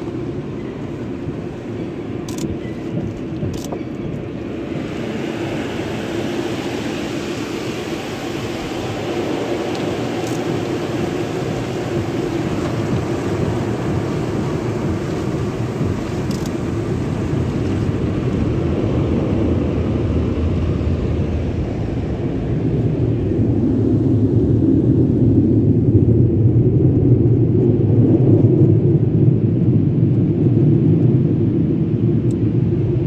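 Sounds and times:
car wash machinery rumble: 0:00.0 - 0:33.0
water spraying on car: 0:04.2 - 0:25.0.

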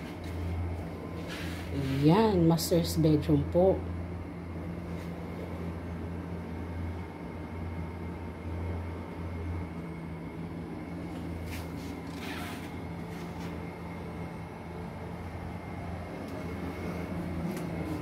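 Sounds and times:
soft rustles: 0:00.0 - 0:02.1, 0:11.1 - 0:13.6
air conditioner humming: 0:00.0 - 0:18.0.

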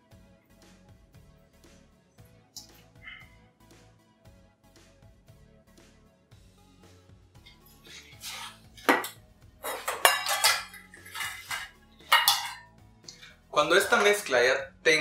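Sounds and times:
steel bowls clanking and ringing: 0:08.3 - 0:12.6.

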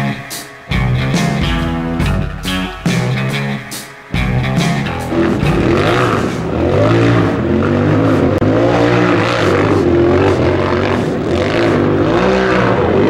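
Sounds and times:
engine revving hard: 0:04.4 - 0:13.0.

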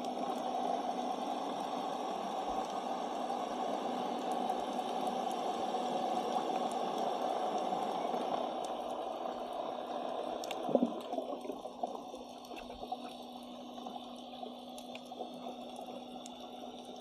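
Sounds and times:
muffled underwater wash: 0:00.0 - 0:17.0
steady low hum: 0:06.8 - 0:17.0
faint clicks: 0:10.4 - 0:13.2.

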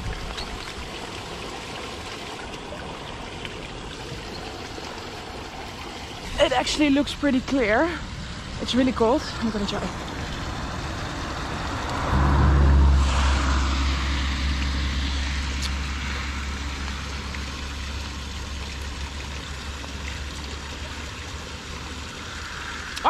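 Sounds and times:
car tyres hissing on wet road: 0:09.9 - 0:18.6, 0:21.8 - 0:23.0.

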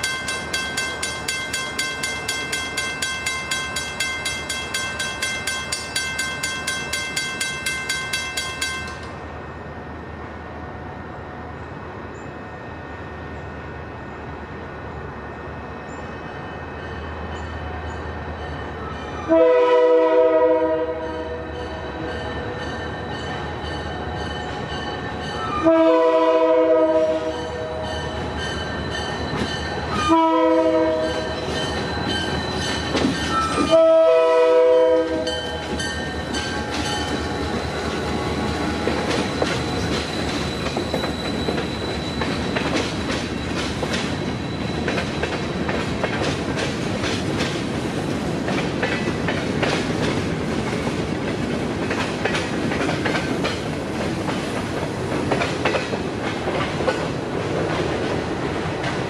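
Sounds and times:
train wheels clicking over rail joints: 0:00.0 - 0:09.2, 0:31.1 - 0:33.8, 0:35.2 - 0:59.0
crossing bell ringing: 0:00.0 - 0:09.3, 0:21.0 - 0:26.1, 0:27.2 - 0:42.6
locomotive air horn blasts: 0:19.3 - 0:21.6, 0:25.6 - 0:27.9, 0:30.0 - 0:31.3, 0:33.3 - 0:35.7.

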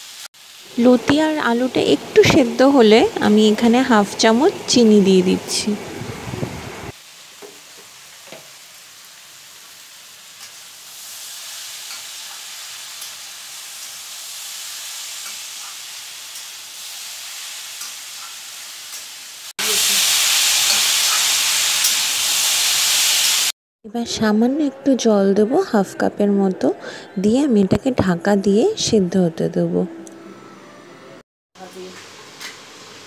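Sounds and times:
food sizzling in oil: 0:00.0 - 0:23.6, 0:31.6 - 0:33.0.

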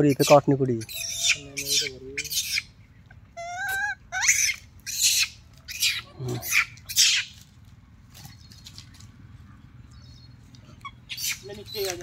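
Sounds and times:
monkey squealing and screeching: 0:00.0 - 0:07.4, 0:10.8 - 0:12.0.

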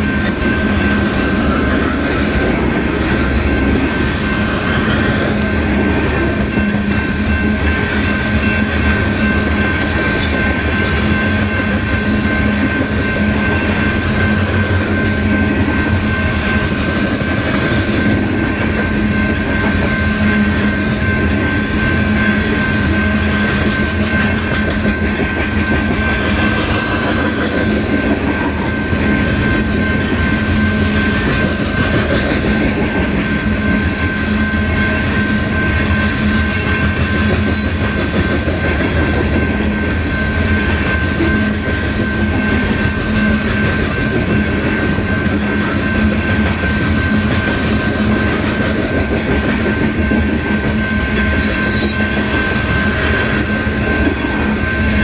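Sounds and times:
train wheels rumbling on rails: 0:00.0 - 0:55.0
wheels clickety-clack over joints: 0:22.4 - 0:33.8, 0:36.0 - 0:55.0.

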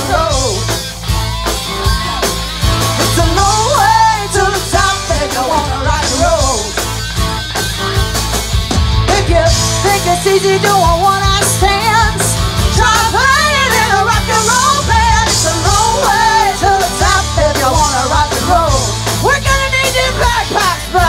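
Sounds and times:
live band through speakers: 0:00.0 - 0:21.0
person singing: 0:02.9 - 0:06.8.

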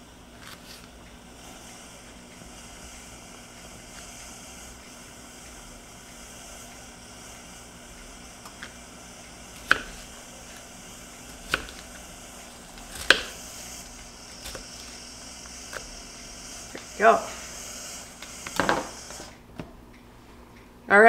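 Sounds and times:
knife tapping on cutting board: 0:13.0 - 0:13.3.

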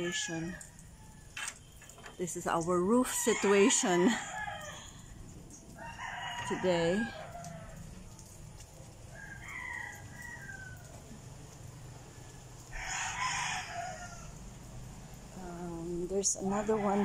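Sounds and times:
rooster crowing: 0:03.1 - 0:05.1, 0:05.8 - 0:08.2, 0:09.1 - 0:11.2, 0:12.2 - 0:14.5, 0:16.5 - 0:17.0.

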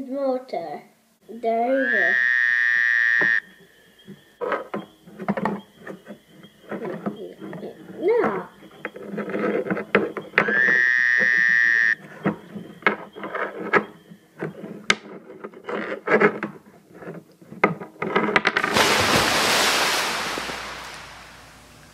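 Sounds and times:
light wooden clicks and knocks: 0:12.0 - 0:18.7
loud hiss: 0:18.6 - 0:21.9.

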